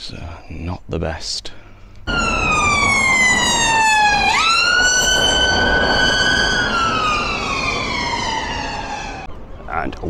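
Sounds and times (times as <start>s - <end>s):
road noise: 2.0s - 10.0s
ambulance siren wailing: 2.1s - 9.3s.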